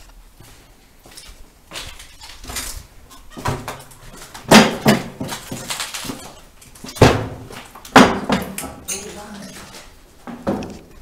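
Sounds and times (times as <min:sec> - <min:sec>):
sharp knocks and bangs with echo: 0:04.4 - 0:05.8, 0:06.9 - 0:08.9.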